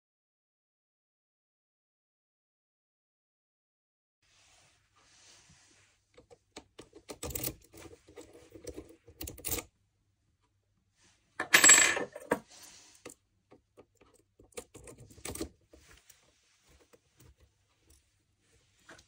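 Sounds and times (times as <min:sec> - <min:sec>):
lock pick clicking in keyway: 0:06.8 - 0:07.7, 0:08.6 - 0:09.6
key clicking in lock cylinder: 0:08.6 - 0:09.6.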